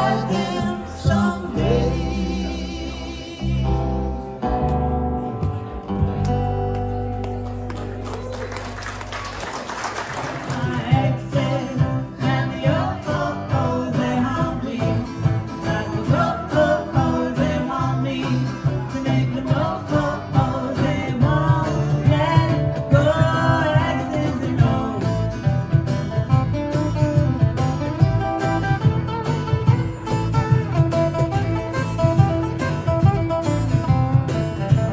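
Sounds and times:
electric lead guitar: 0.0 - 34.9
live acoustic band playing: 0.0 - 34.9
cajon beat: 9.3 - 13.3, 18.2 - 34.9.

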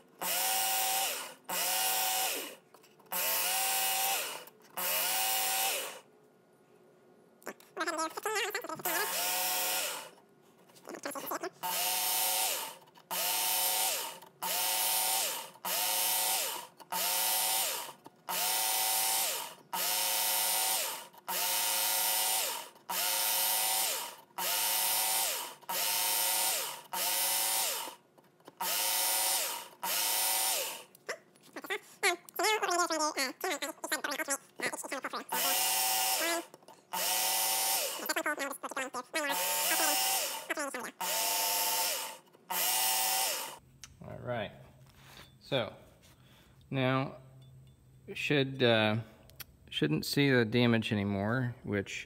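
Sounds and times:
electric belt sharpener running: 0.2 - 6.0, 8.8 - 10.1, 11.6 - 30.9, 35.2 - 38.2, 38.8 - 43.6
knife grinding on abrasive belt: 32.4 - 43.6.

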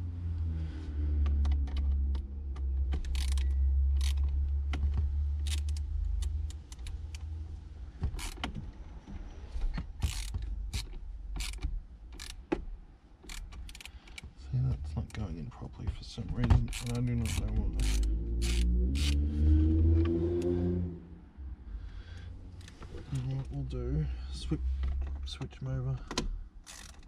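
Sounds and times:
small metallic rattles: 7.9 - 14.4.

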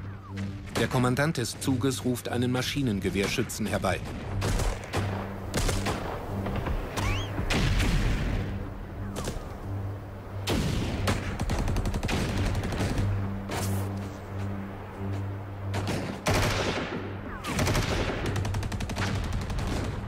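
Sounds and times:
gunshots: 3.2 - 8.5, 15.7 - 20.0
rapid gunfire burst: 17.4 - 20.0.

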